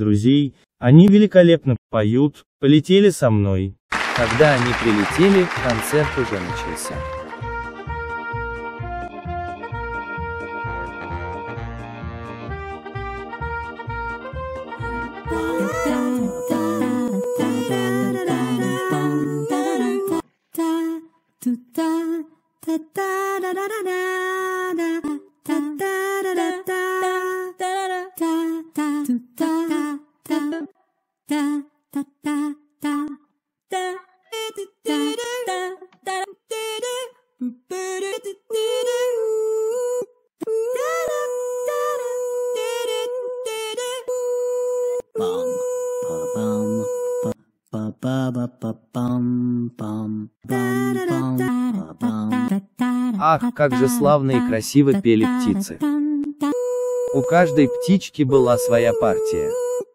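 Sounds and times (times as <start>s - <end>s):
backing track with low notes: 4.2s - 20.1s
a cappella voices humming and singing: 14.8s - 59.9s.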